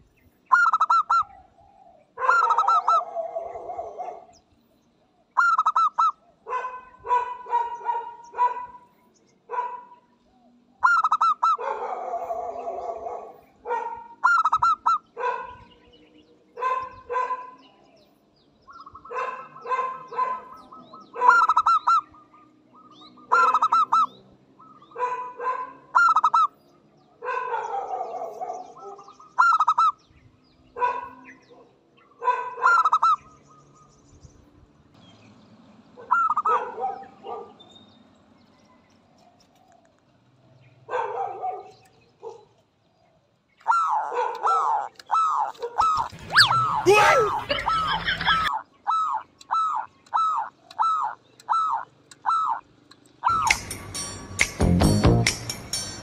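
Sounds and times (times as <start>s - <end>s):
dove cooing: 0.0s - 4.4s, 5.4s - 8.6s, 10.8s - 15.6s, 18.7s - 22.1s, 22.8s - 26.5s, 36.0s - 37.4s, 43.6s - 53.6s.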